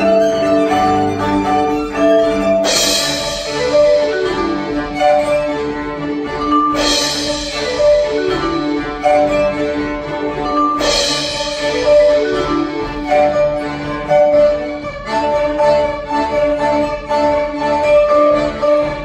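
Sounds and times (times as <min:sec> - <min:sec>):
percussion crash: 0:00.0 - 0:16.5
bluegrass quartet with drums: 0:00.0 - 0:19.0.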